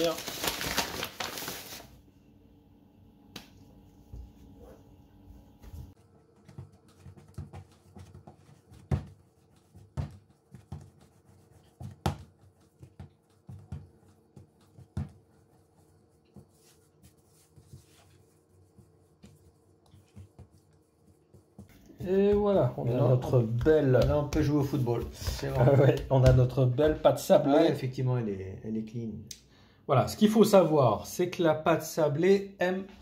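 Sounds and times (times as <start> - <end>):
hands kneading and patting dough: 5.4 - 27.8.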